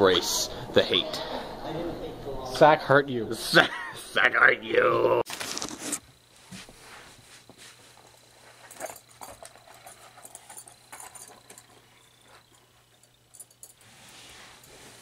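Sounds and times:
handling rustles and clicks: 7.4s - 15.0s.

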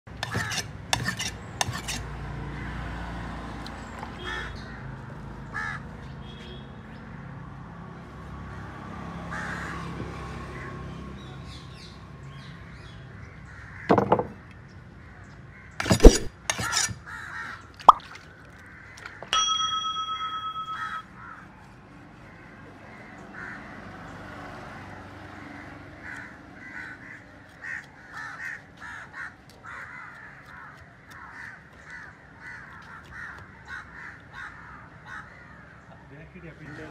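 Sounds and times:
outdoor background noise: 0.1s - 36.9s
crows cawing: 4.2s - 5.9s, 9.2s - 10.8s, 13.5s - 14.0s, 17.0s - 17.7s, 20.8s - 21.5s, 22.9s - 23.9s, 25.4s - 36.9s
sharp knocks: 13.9s - 14.4s.

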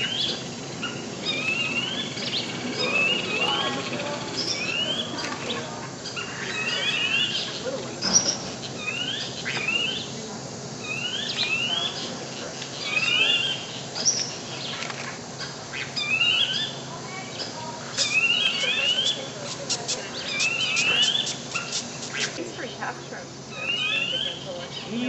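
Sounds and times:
bird calling rising whistled notes: 0.0s - 5.3s, 6.2s - 10.1s, 23.5s - 24.9s.

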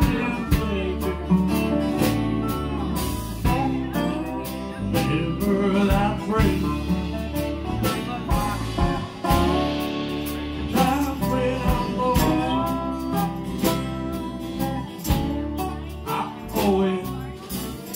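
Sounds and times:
acoustic guitars strummed: 0.0s - 17.9s.

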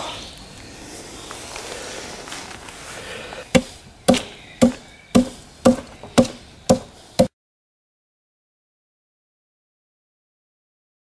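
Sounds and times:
adze chopping into wood: 3.5s - 7.3s.

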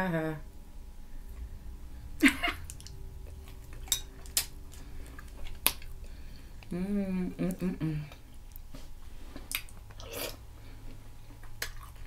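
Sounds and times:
clicks and smacks of eating shrimp: 2.5s - 6.8s, 9.4s - 12.0s
wet mouth sound: 9.4s - 10.4s.

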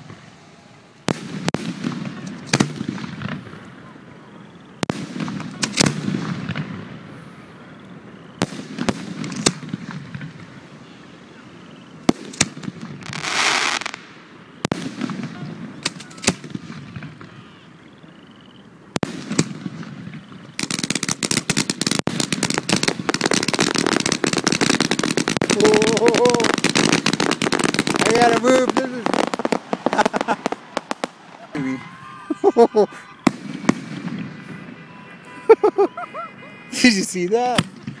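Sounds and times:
firework hiss: 0.0s - 17.4s, 18.9s - 31.8s
fireworks bursting with bangs: 0.0s - 17.6s, 18.9s - 31.8s, 32.4s - 38.0s
rapid crackling pops: 19.0s - 31.4s.

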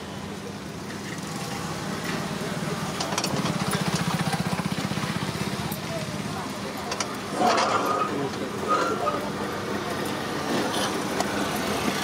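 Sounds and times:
faint voices: 0.0s - 12.0s.

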